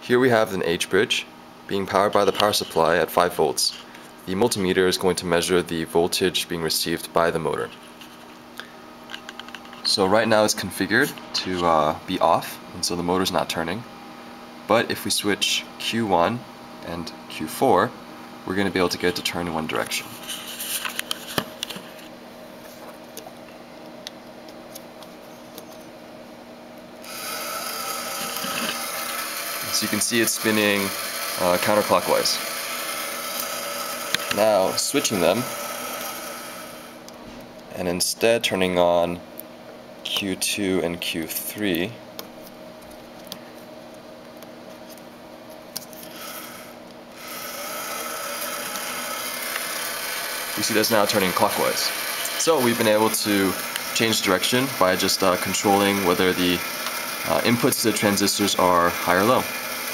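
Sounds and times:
small motor running with faint whine: 27.0s - 37.2s, 45.8s - 59.9s.

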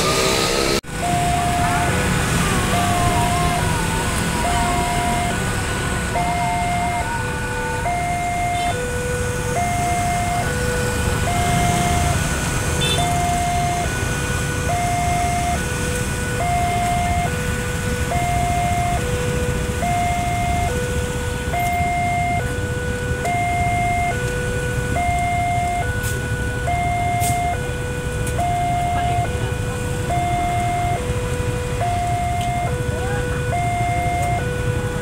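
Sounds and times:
low rumble of traffic: 0.0s - 35.0s
level-crossing two-note alarm chime: 19.8s - 24.3s.

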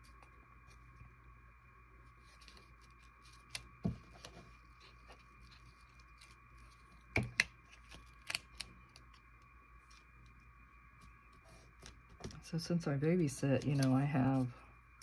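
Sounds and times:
faint steady hum: 0.0s - 15.0s
paper and glue stick handling: 13.6s - 14.5s.

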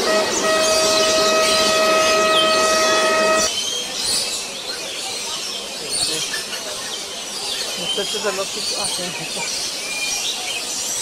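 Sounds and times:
passenger train humming: 0.0s - 3.5s
train rumble: 0.0s - 3.5s.

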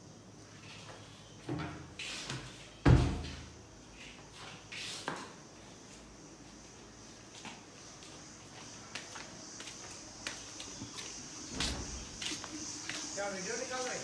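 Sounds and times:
door shutting with loud thud: 2.8s - 3.5s, 11.5s - 12.2s.

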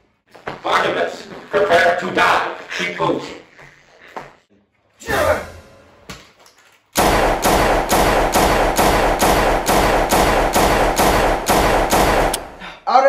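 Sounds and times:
rapid automatic gunfire: 7.0s - 12.4s.

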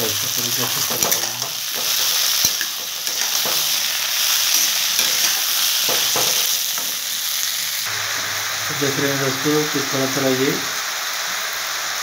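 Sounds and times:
vegetables sizzling in oil: 0.0s - 12.0s.

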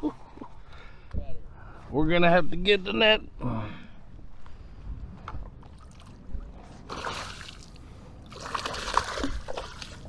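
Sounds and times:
water splashing beside kayak: 6.8s - 10.0s.

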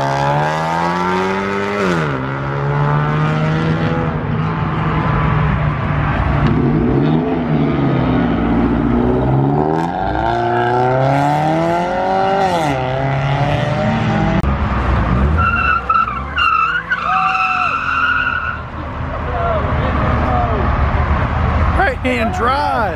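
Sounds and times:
car engines revving: 0.0s - 22.9s
tire squeal: 15.2s - 18.8s.

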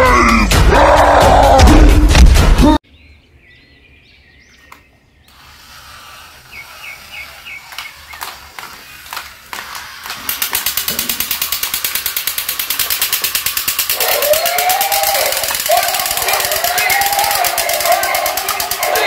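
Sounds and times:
fast mechanical rattle: 5.3s - 19.0s
plastic toy clicks and taps: 7.7s - 19.0s.

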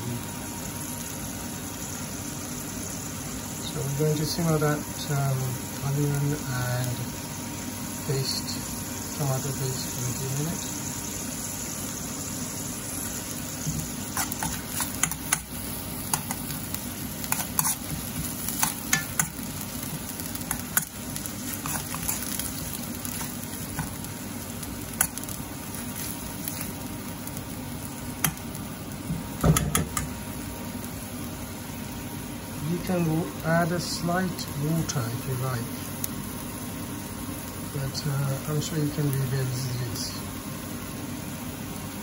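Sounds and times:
onions sizzling in a wok: 0.0s - 42.0s
metal spoon scraping a pan: 14.1s - 15.4s, 17.3s - 19.3s.

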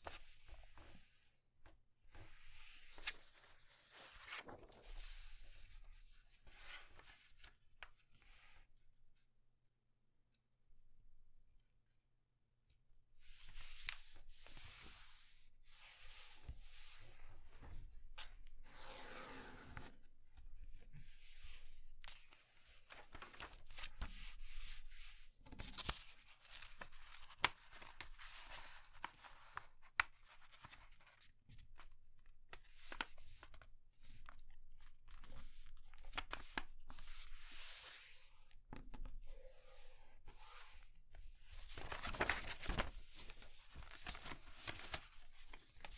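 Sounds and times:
paper rustling and sliding: 2.1s - 5.8s, 21.4s - 31.2s, 41.5s - 45.9s.

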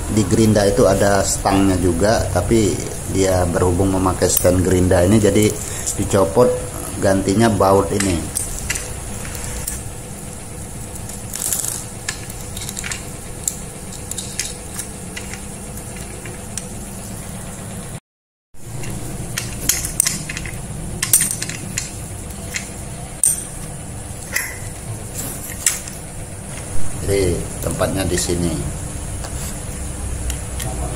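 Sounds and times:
steady hum and hiss: 0.0s - 18.0s, 18.6s - 30.9s
metal clicks of bolt and nut: 18.8s - 21.9s.

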